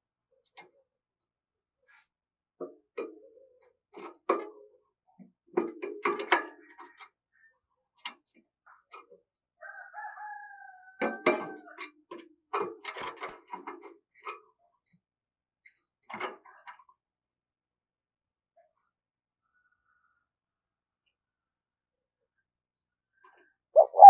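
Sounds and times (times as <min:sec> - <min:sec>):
dove pecking at feeder: 0:23.8 - 0:24.0
drawn-out bird call: 0:23.8 - 0:24.0.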